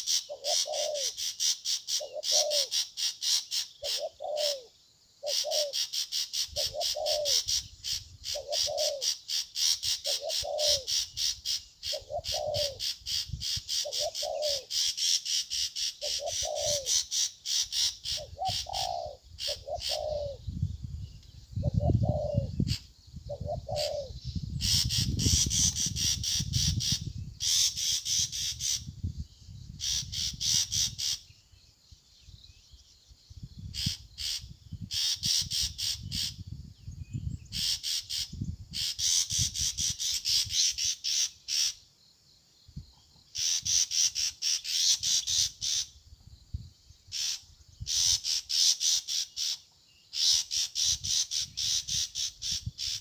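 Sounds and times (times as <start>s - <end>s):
dove cooing: 0.0s - 1.2s, 2.0s - 2.8s, 3.8s - 5.9s, 6.5s - 7.6s, 8.3s - 9.2s, 9.8s - 11.1s, 11.8s - 12.9s, 13.8s - 14.8s, 16.0s - 17.0s, 18.1s - 20.4s, 21.6s - 22.6s, 23.3s - 24.2s.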